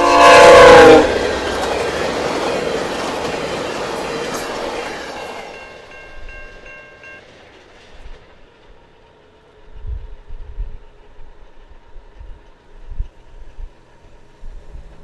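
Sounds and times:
locomotive horn chord: 0.0s - 1.4s
rail cars clattering past: 0.0s - 15.0s
level-crossing bell ringing: 5.0s - 7.3s.

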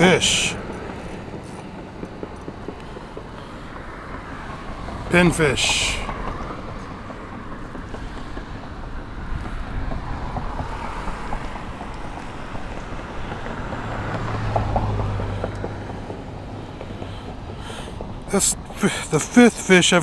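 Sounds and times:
wind buffeting microphone: 6.0s - 18.8s.

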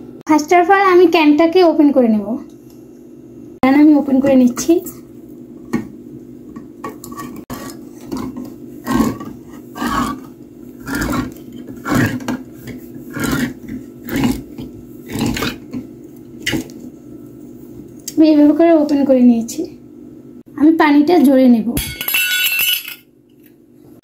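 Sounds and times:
can opener crunching grind: 6.9s - 16.8s.

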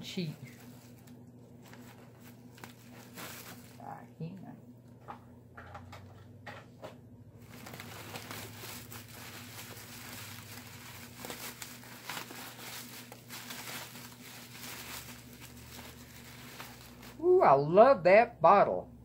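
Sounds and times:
faint low hum: 0.0s - 19.0s
bubble wrap crinkling: 0.1s - 4.1s, 7.4s - 17.4s.

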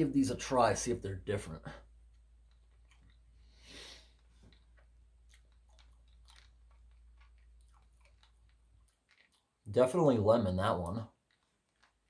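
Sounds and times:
candy clicking in mouth: 4.5s - 9.7s, 10.8s - 12.0s.

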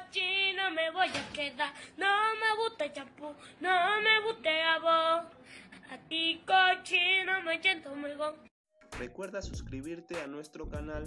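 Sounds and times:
woman singing: 0.0s - 8.5s.

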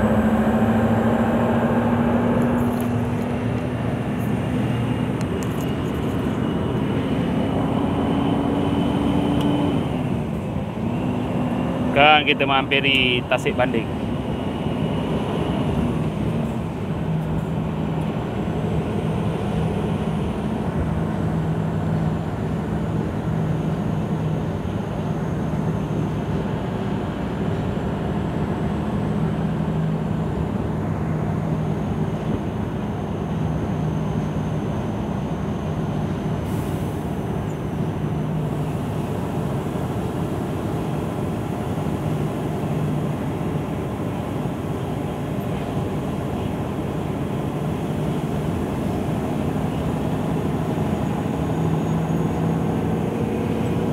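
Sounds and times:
diesel truck engine droning: 0.0s - 53.9s.

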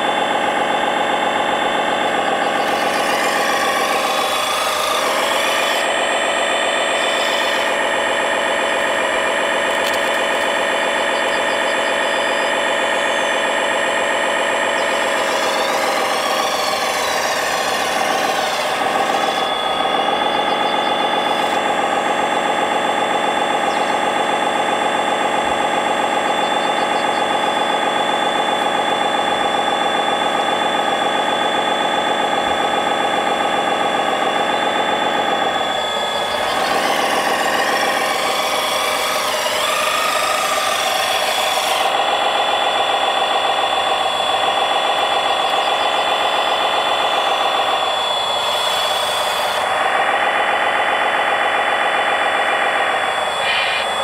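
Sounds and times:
toy machine motor whine: 0.0s - 54.0s.

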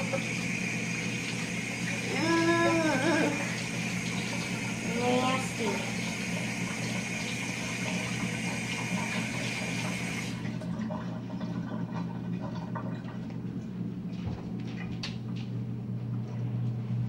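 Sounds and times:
faucet running into steel sink: 0.0s - 13.4s.

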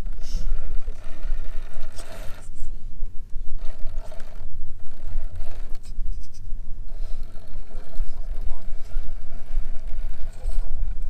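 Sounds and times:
electric motor whirring: 0.0s - 2.7s, 3.4s - 6.0s, 6.8s - 11.0s.

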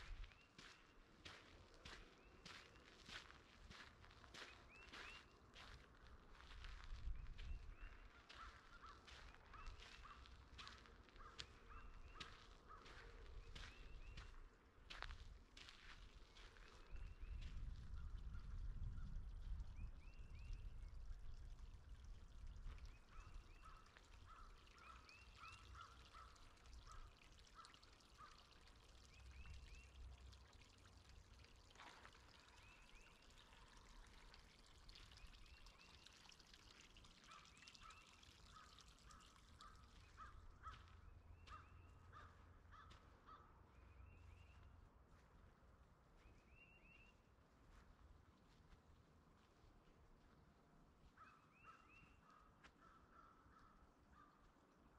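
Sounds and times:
bird chirps: 4.4s - 5.4s.

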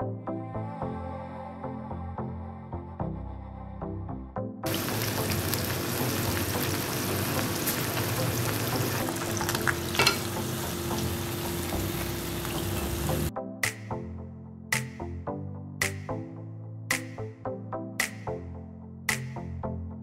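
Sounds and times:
oil sizzling and bubbling: 4.7s - 13.3s.

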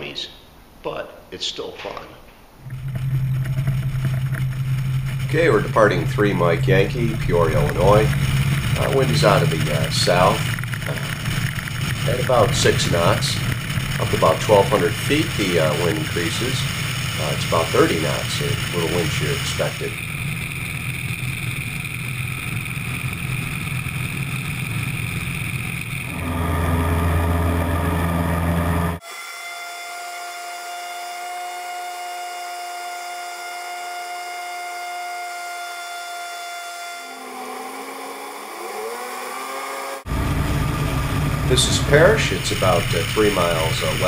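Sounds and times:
wheels rumbling on runway: 2.6s - 29.0s, 40.0s - 44.0s
small plane engine and propeller: 2.6s - 29.1s, 33.5s - 44.0s.

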